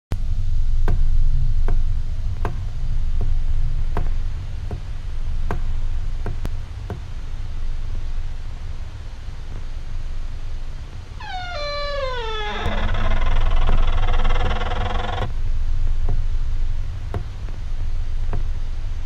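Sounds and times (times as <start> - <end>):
low steady rumble: 0.1 - 19.0.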